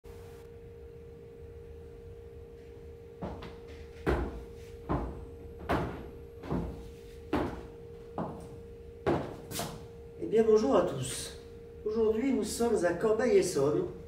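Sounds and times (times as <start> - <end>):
faint steady hum: 0.1 - 14.0
hard shoes on tiled floor: 3.2 - 8.5.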